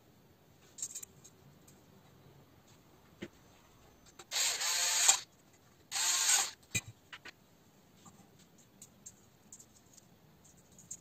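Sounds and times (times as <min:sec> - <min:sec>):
electric screwdriver running: 0:04.3 - 0:05.2, 0:05.9 - 0:06.6.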